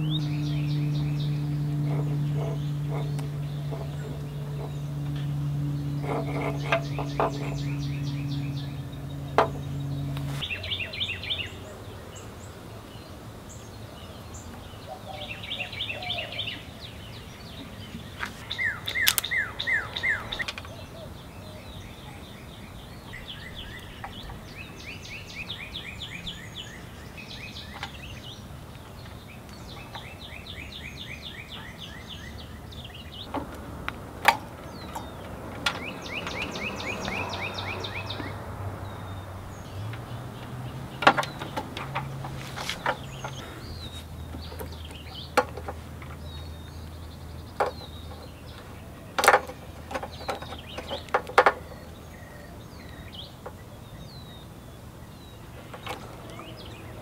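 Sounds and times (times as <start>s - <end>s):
songbirds singing trilled phrases: 0.0s - 57.0s
sharp clicks: 18.2s - 20.7s.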